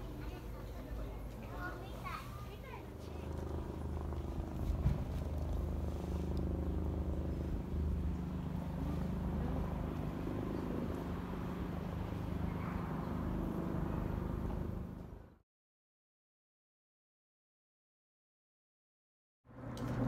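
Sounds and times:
city background rumble and hum: 0.0 - 15.4, 19.5 - 20.0.

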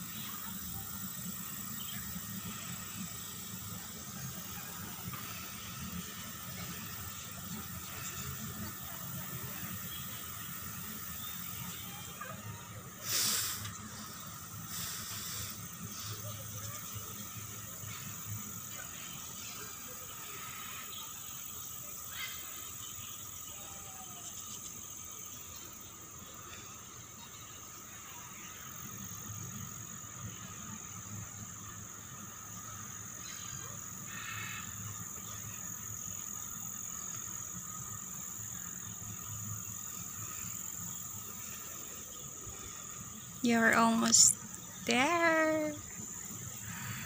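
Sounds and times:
high-pitched animal chorus: 39.9 - 47.0.

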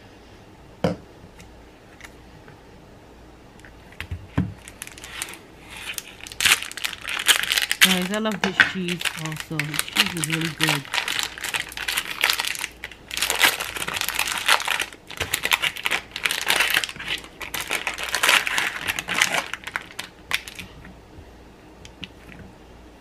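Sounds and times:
plastic wrapping crinkling: 3.9 - 20.8.

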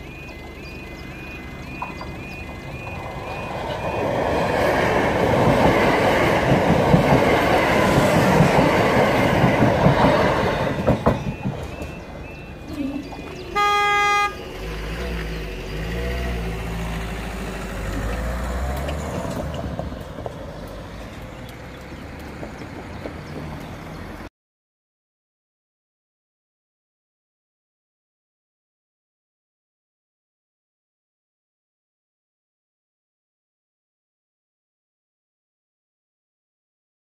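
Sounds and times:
car engine running low: 0.0 - 3.9
electric train passing: 0.0 - 24.2
train horn blast: 13.5 - 14.6.

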